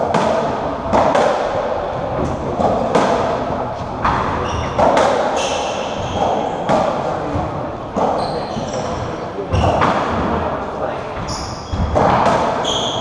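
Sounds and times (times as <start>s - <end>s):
ball hits echoing off court walls: 0.0s - 10.5s, 11.2s - 13.0s
shoe squeaks on wooden floor: 4.4s - 4.8s, 8.0s - 9.8s, 11.2s - 12.0s, 12.6s - 13.0s.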